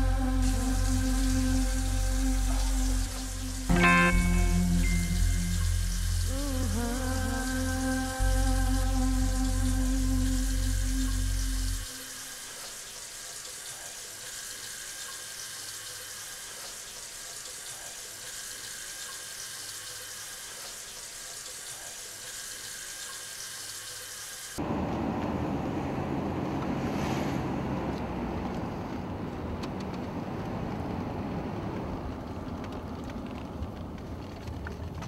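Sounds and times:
tap water running: 0:00.3 - 0:24.6
car driving heard from inside: 0:24.6 - 0:35.0.

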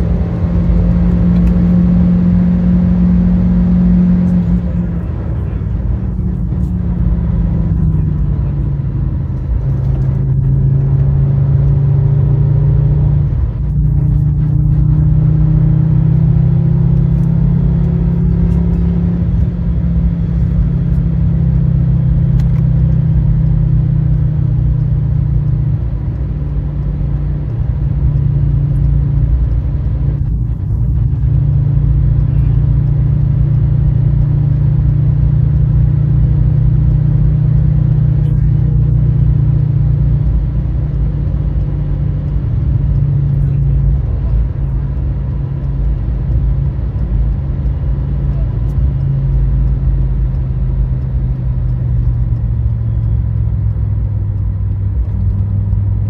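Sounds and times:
car engine accelerating: 0:00.0 - 0:56.0.

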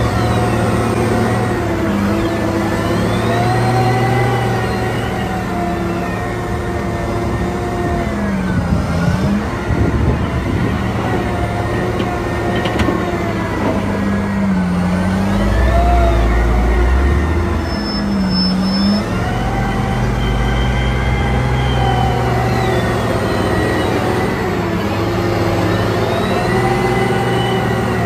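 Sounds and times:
wheel loader diesel engine under load: 0:00.0 - 0:28.0.

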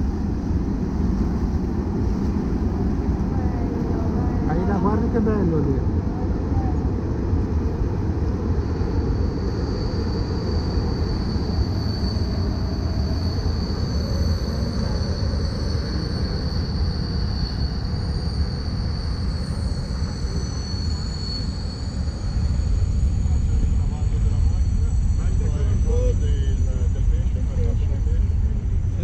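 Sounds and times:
freight train rumbling: 0:00.0 - 0:29.0
high-pitched squeal: 0:07.8 - 0:29.0.

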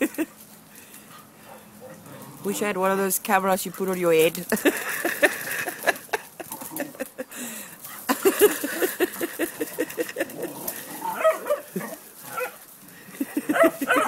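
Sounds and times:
dogs barking in play: 0:01.1 - 0:03.0, 0:07.8 - 0:14.0
dogs yipping and whining: 0:07.9 - 0:12.6, 0:13.2 - 0:14.0.

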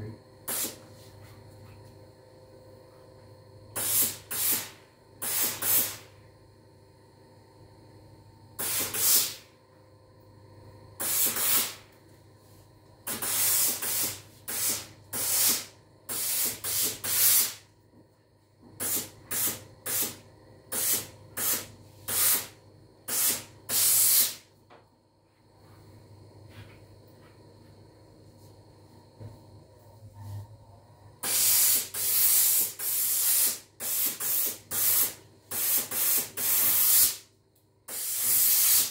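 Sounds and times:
steam iron hissing: 0:00.5 - 0:00.8, 0:03.8 - 0:06.1, 0:08.6 - 0:09.4, 0:11.0 - 0:11.8, 0:13.1 - 0:17.6, 0:18.8 - 0:22.5, 0:23.1 - 0:24.4, 0:31.2 - 0:37.3, 0:37.9 - 0:38.9.

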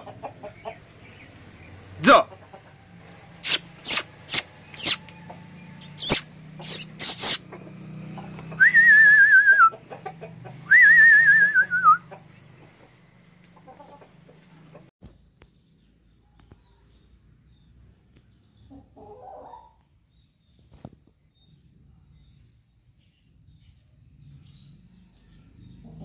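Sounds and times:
sharp high chirps: 0:03.4 - 0:05.1, 0:05.8 - 0:07.5
warbling whistles: 0:03.4 - 0:05.1, 0:05.8 - 0:07.5, 0:10.7 - 0:12.0.

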